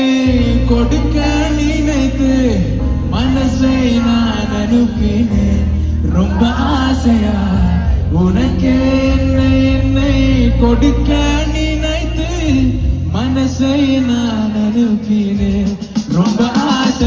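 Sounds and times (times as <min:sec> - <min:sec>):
heavy bass: 0:00.0 - 0:17.0
live band music: 0:00.0 - 0:17.0
man singing long notes: 0:00.0 - 0:17.0.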